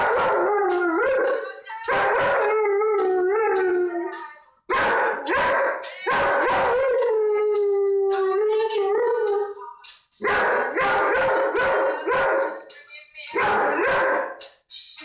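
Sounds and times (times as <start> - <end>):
dog howling: 0.0 - 4.1, 4.7 - 9.6, 10.3 - 12.5
song playing: 0.0 - 15.0.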